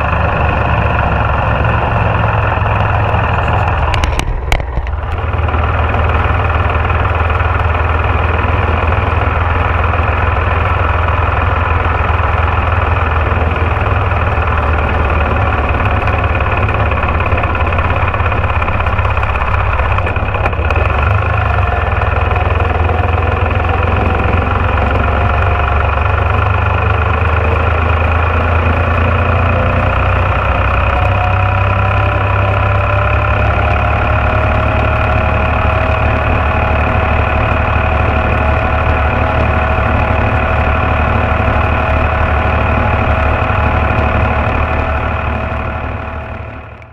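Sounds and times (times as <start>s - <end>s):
tractor engine under load: 0.0s - 46.9s
whine: 0.0s - 46.9s.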